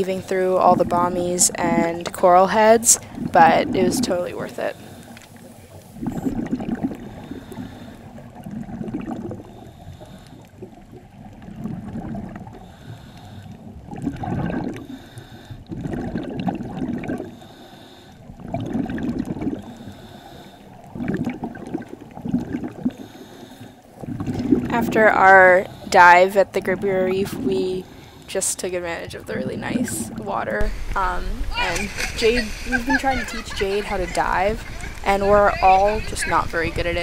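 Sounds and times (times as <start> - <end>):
exhaled bubbles gurgling: 0.0 - 37.0
diver breathing through regulator: 4.6 - 8.4, 9.3 - 10.8, 12.4 - 13.8, 14.7 - 15.8, 17.2 - 18.4, 19.4 - 20.9, 22.8 - 24.7, 25.4 - 26.0, 27.8 - 28.3.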